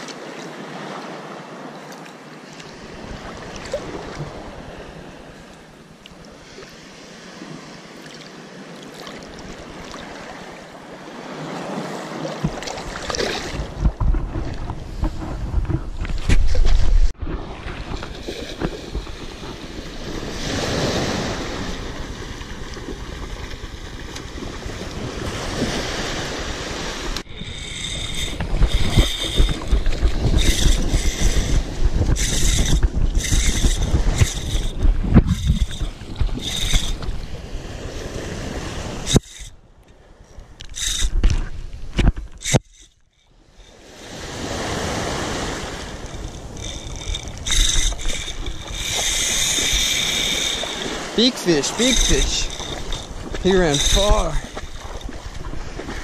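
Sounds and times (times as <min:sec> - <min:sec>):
wind on microphone: 0:12.4 - 0:39.6, 0:40.3 - 0:56.0
surf washing around legs: 0:43.8 - 0:56.0.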